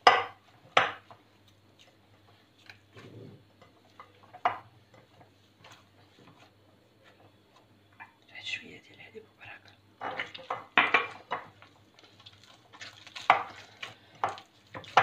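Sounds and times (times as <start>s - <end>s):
dough squishing: 0.0s - 7.8s, 10.2s - 15.0s.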